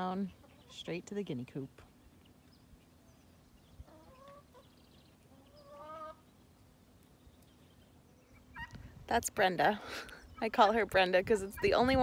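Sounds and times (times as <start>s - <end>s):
hen calling: 3.8s - 6.3s.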